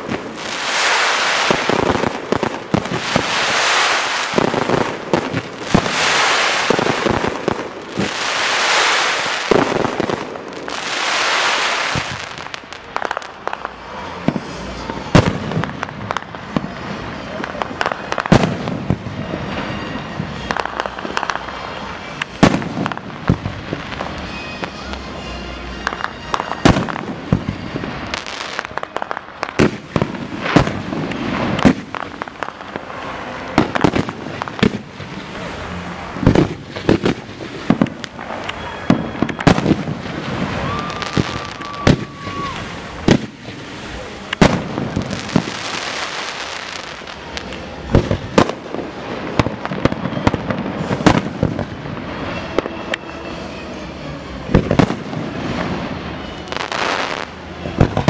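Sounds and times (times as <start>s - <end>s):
whistle-like tone: 24.0s - 28.2s, 38.2s - 43.0s
small firework pops: 28.5s - 32.8s, 44.3s - 48.7s.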